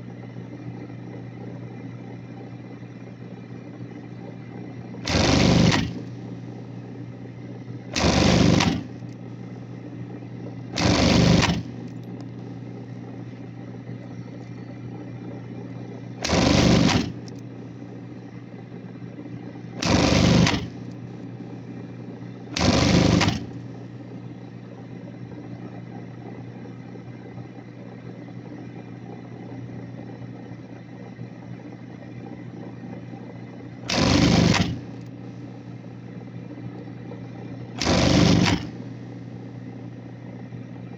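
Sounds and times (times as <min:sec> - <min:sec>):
sewing machine motor hum: 0:00.0 - 0:40.9
sewing machine stitching: 0:05.0 - 0:06.1, 0:07.9 - 0:09.0, 0:10.7 - 0:11.9, 0:16.2 - 0:17.3, 0:19.8 - 0:20.9, 0:22.5 - 0:23.6, 0:33.8 - 0:35.1, 0:37.8 - 0:38.8.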